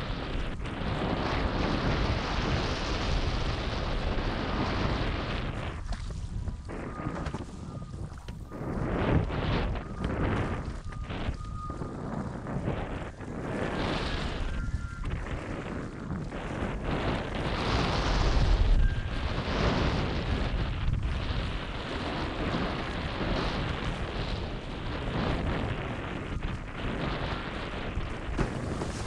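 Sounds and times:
wind buffeting microphone: 0.0s - 29.0s
rushing water: 28.4s - 29.0s.

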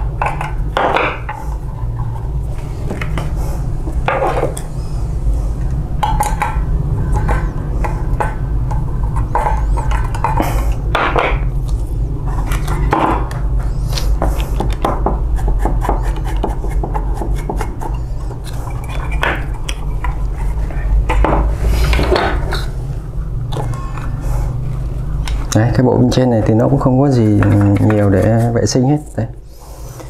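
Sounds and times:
scraping and rubbing: 7.0s - 25.5s, 26.4s - 28.8s
low hum: 17.8s - 25.6s.

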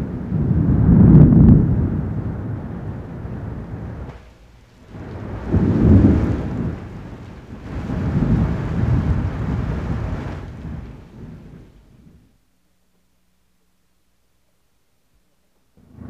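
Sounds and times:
thunder rumbling: 0.0s - 12.4s
steady rain: 0.0s - 12.5s.

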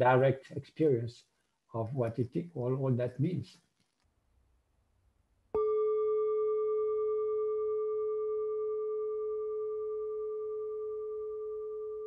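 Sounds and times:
singing bowl ringing: 5.6s - 12.0s.

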